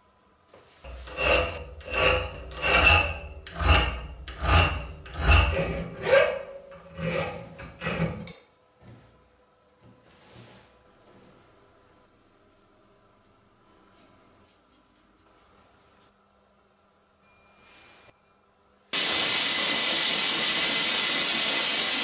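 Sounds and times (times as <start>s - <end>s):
file rasping on steel: 0.9s - 8.4s.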